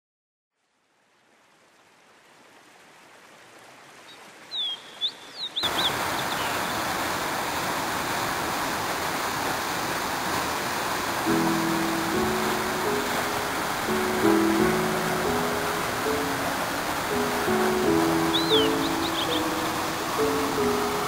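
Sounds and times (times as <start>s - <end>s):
waterfall rushing: 3.4s - 21.0s
bird chirps: 4.5s - 6.8s, 17.4s - 20.8s.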